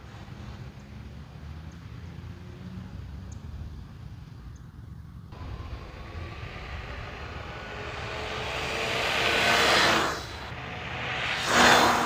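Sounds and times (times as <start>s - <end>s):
electric scooter riding past: 5.4s - 12.0s.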